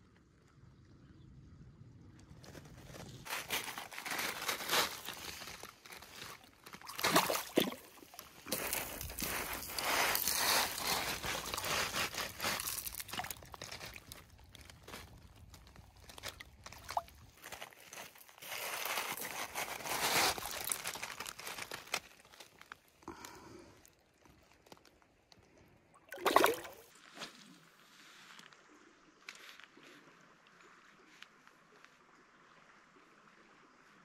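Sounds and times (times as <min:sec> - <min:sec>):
crinkling and rustling handling: 0:02.4 - 0:25.6.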